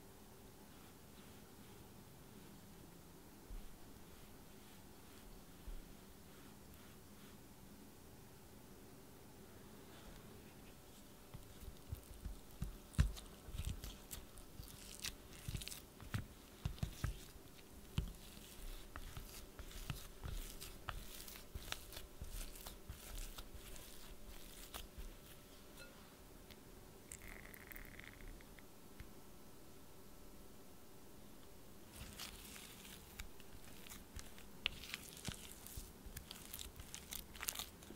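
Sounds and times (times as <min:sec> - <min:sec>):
squishy mashing: 0:11.3 - 0:25.5, 0:31.9 - 0:37.9.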